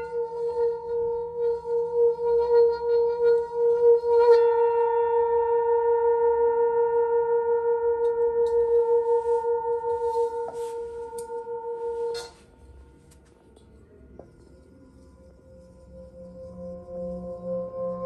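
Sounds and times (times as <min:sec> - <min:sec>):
singing bowl ringing: 0:00.0 - 0:12.7, 0:14.4 - 0:18.0.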